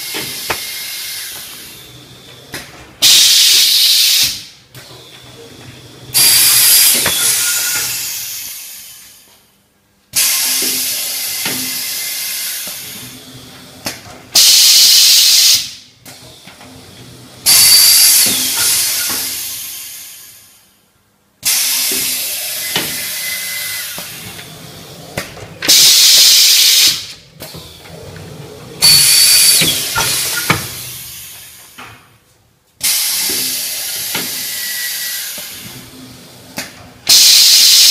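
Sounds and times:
loud air blasts: 3.0s - 4.6s, 14.4s - 15.8s, 25.7s - 27.1s, 37.1s - 37.9s
compressed air hissing: 25.7s - 27.1s.

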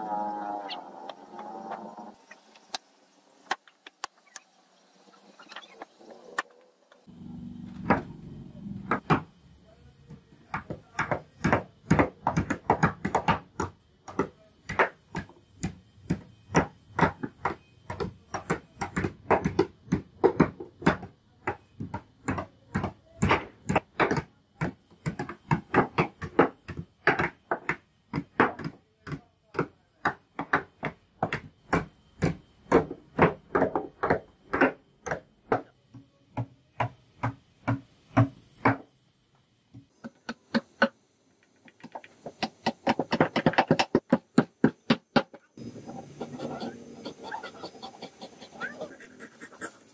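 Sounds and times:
hammers driving nails into wood: 8.9s - 9.4s, 10.1s - 38.9s, 40.0s - 41.0s, 41.7s - 45.5s.

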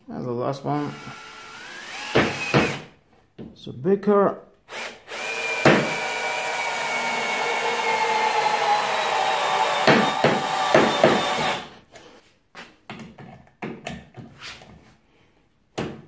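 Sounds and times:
cordless drill driving screw: 0.8s - 2.9s, 4.7s - 11.8s.

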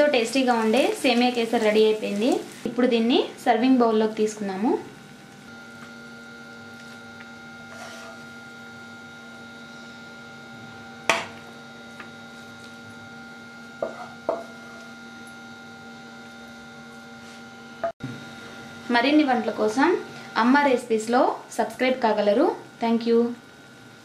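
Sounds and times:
steady background hum: 0.0s - 24.0s
spoon knocking and scraping bowl: 13.8s - 14.9s.

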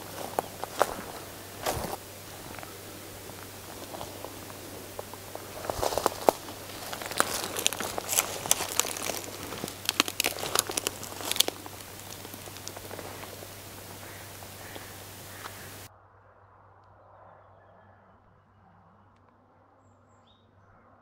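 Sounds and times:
dry leaves and twigs crunching: 0.0s - 15.9s.

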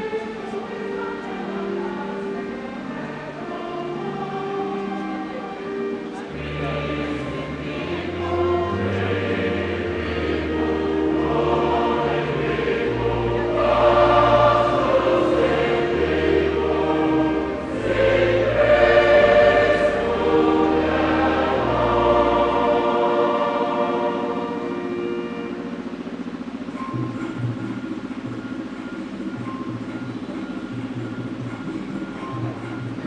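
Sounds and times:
choir singing a hymn: 0.0s - 26.2s
low sustained bass line: 0.0s - 33.0s.

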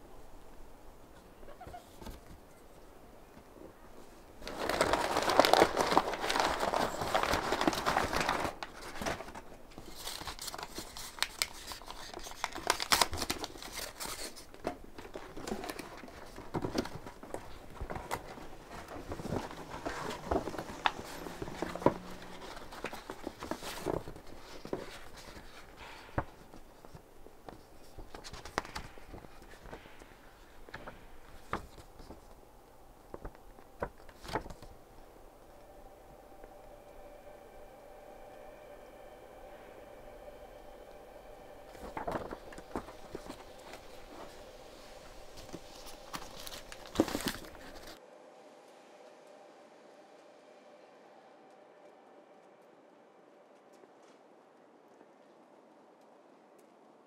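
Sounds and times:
hands rustling and crinkling: 1.1s - 35.7s, 40.2s - 48.0s.

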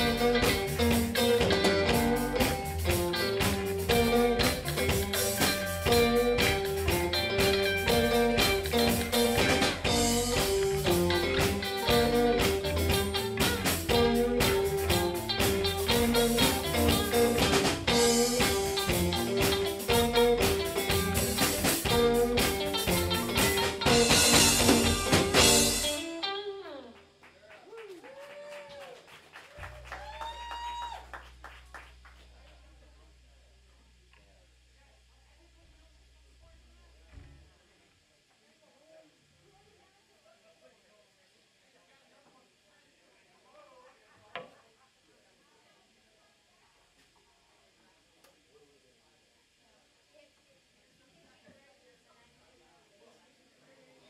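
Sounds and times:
country band playing: 0.0s - 27.1s
low amplifier hum: 0.0s - 38.5s.

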